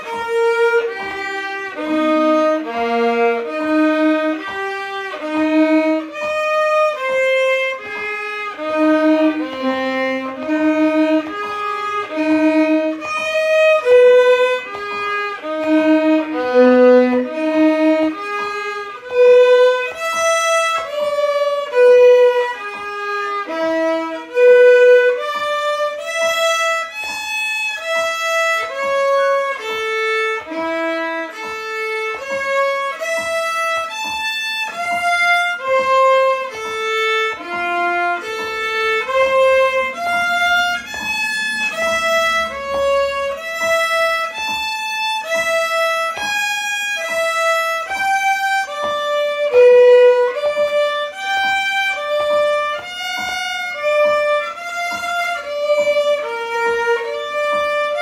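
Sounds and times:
solo violin melody: 0.0s - 58.0s.

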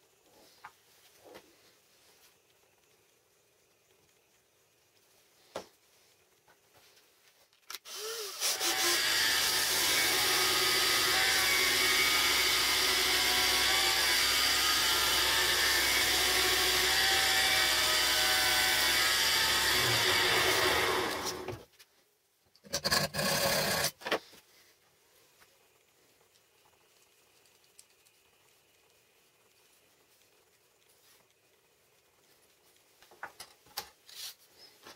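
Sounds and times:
belt sander running: 7.9s - 21.6s.

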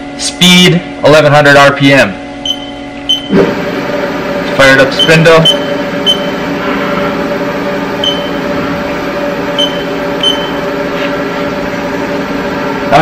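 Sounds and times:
milling machine spindle hum: 2.2s - 13.0s
control panel beeps: 2.4s - 3.4s, 4.9s - 6.4s, 8.0s - 8.4s, 9.6s - 10.6s.

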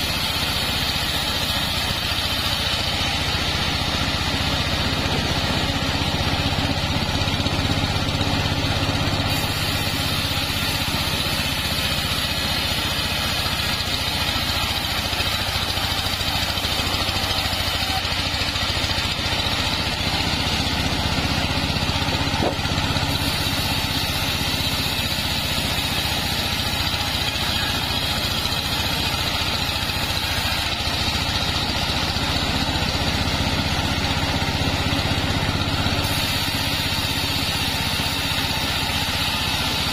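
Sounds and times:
saw blade cutting log: 0.0s - 39.9s
sawmill engine hum: 0.0s - 39.9s.

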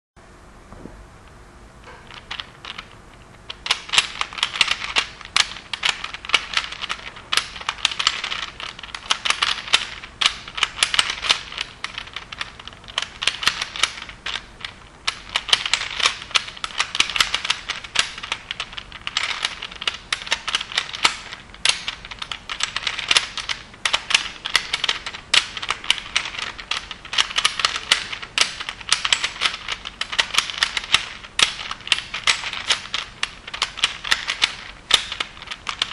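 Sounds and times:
plastic twisty puzzle clicking: 1.9s - 35.9s.

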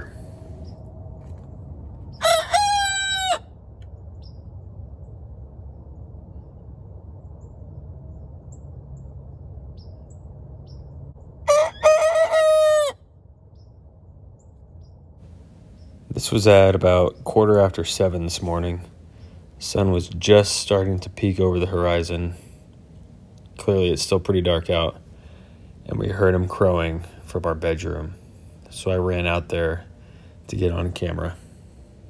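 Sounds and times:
low steady hum: 0.0s - 32.0s
rooster crowing: 2.1s - 3.5s, 11.5s - 13.0s.

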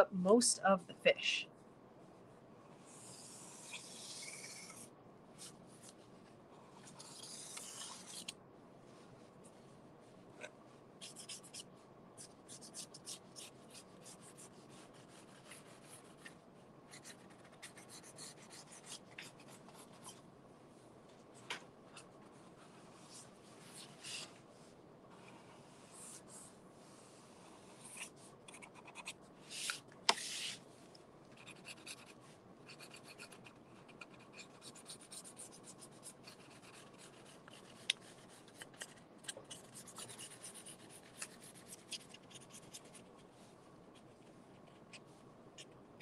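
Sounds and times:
marker strokes on cardboard: 11.0s - 16.4s, 27.7s - 30.6s.

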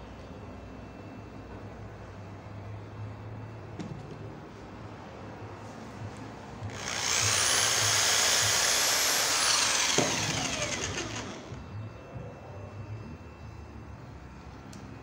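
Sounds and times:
electric drill whining: 6.7s - 11.8s.

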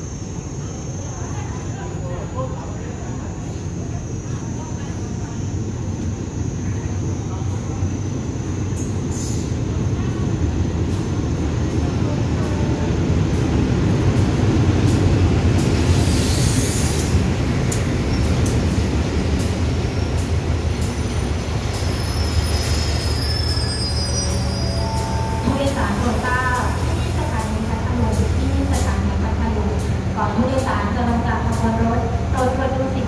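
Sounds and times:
locomotive engine droning: 4.8s - 33.0s
faint metallic squeal: 21.9s - 25.5s.

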